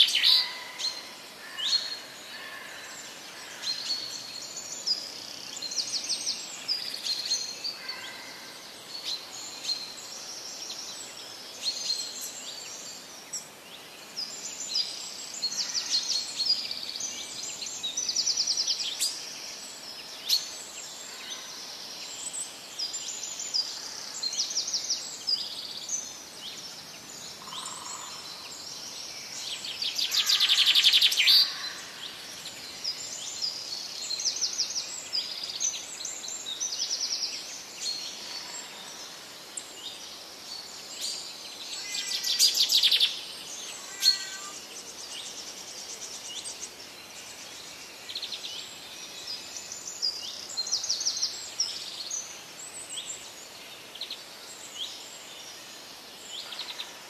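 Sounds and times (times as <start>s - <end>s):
faint steady hiss: 0.0s - 57.0s
small birds chirping and singing: 0.0s - 57.0s
bird trills: 43.9s - 44.6s.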